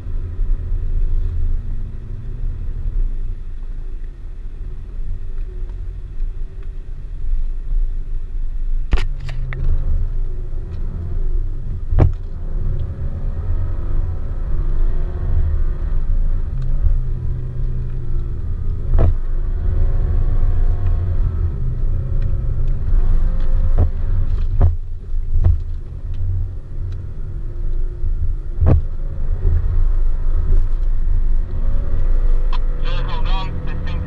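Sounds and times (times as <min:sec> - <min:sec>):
engine rumble inside car cabin: 0:00.0 - 0:34.0
car suspension knocks: 0:23.7 - 0:24.8.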